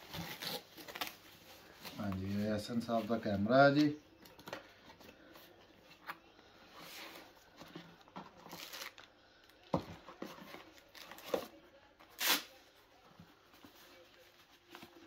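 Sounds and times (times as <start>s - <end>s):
packaging rustling and crinkling: 7.1s - 9.1s.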